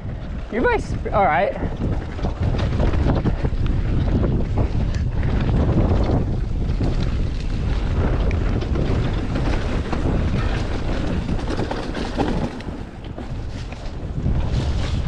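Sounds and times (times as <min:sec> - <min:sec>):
bike knocking and rattling: 0:00.0 - 0:15.0
bike tyres rolling on dirt: 0:00.0 - 0:15.0
wind buffeting microphone: 0:00.0 - 0:15.0.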